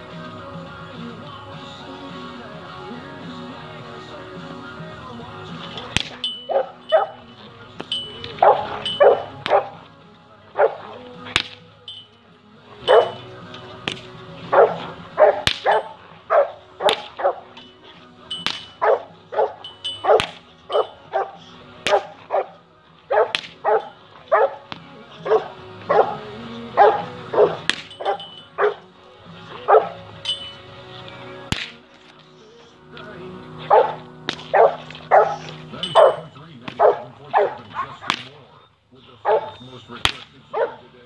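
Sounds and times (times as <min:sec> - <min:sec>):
dog barking: 0:06.5 - 0:07.2, 0:08.4 - 0:09.8, 0:10.6 - 0:11.0, 0:12.8 - 0:13.3, 0:14.5 - 0:17.6, 0:18.8 - 0:28.8, 0:29.6 - 0:30.0, 0:33.7 - 0:36.2, 0:36.8 - 0:38.1, 0:39.2 - 0:39.6, 0:40.5 - 0:40.9.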